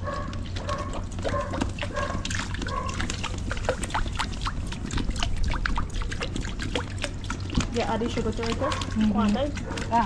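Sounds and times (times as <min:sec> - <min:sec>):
dog yapping: 0:00.0 - 0:03.2, 0:08.6 - 0:09.0.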